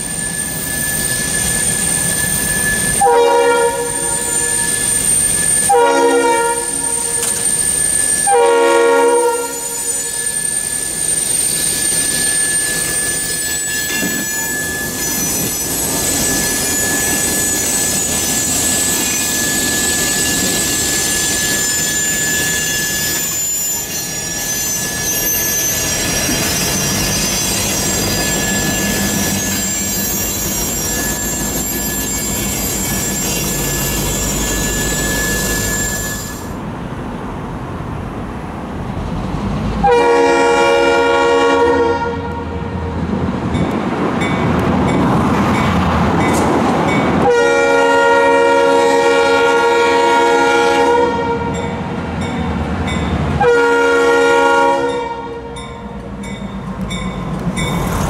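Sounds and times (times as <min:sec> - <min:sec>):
train wheels squealing: 0:00.0 - 0:36.6, 0:55.5 - 0:58.0
rumble and clatter of freight cars: 0:00.0 - 0:58.0
train air horn blasts: 0:02.7 - 0:05.0, 0:05.6 - 0:07.5, 0:08.2 - 0:10.6, 0:39.8 - 0:42.8, 0:47.2 - 0:51.6, 0:53.4 - 0:55.6.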